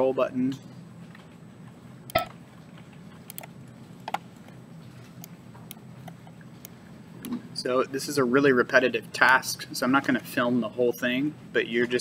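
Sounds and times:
computer mouse clicks: 3.3s - 3.5s.

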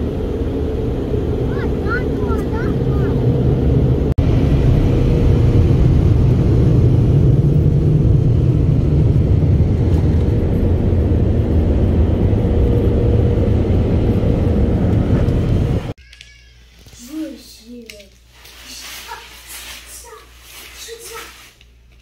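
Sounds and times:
car wash machinery running: 0.0s - 16.0s.

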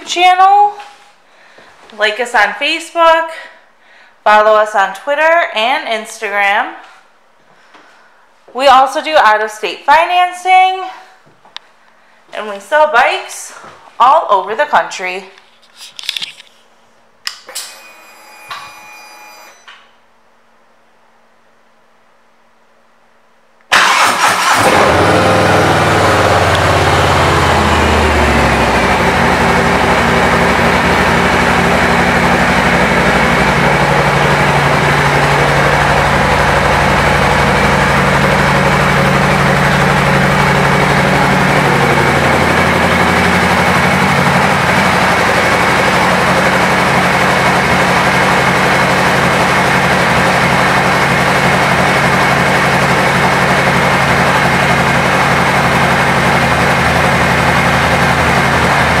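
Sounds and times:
motorcycle engine idling: 24.0s - 59.0s.

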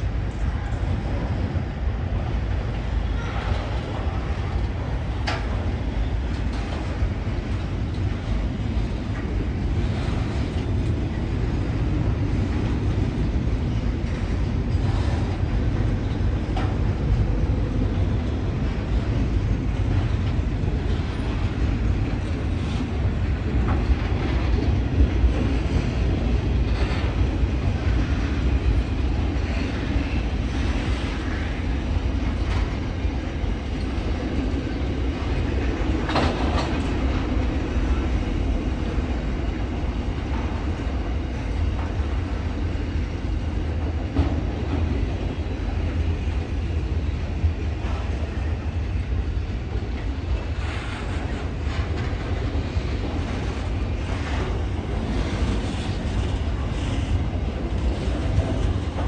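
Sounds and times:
freight train wheels rumbling: 0.0s - 59.0s.

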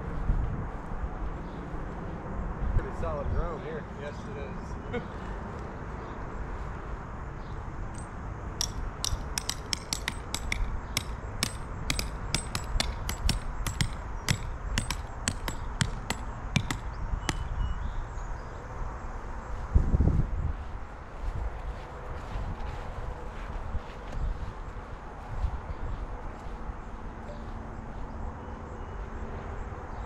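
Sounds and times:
hammer clanking on metal stake: 8.0s - 17.5s.

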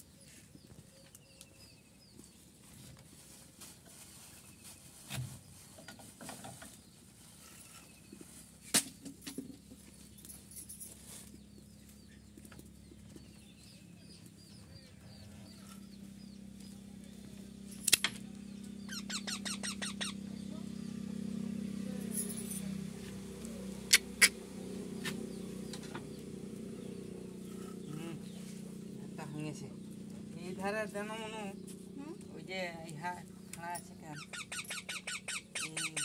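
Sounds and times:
low steady hum: 8.8s - 36.0s
parakeets squeaking: 18.5s - 21.0s, 23.8s - 32.5s, 33.2s - 36.0s.

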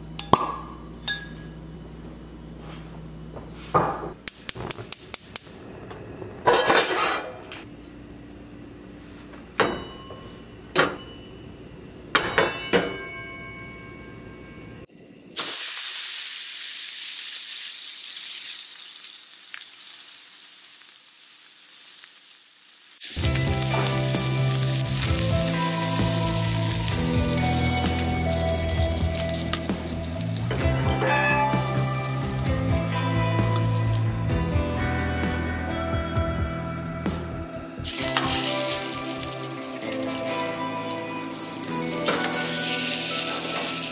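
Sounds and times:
steak sizzling in pan: 15.1s - 34.0s, 37.8s - 43.9s
background music: 23.2s - 43.9s.

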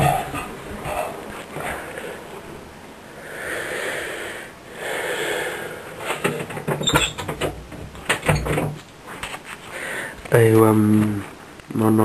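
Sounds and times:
breathy whooshes: 3.1s - 6.0s.

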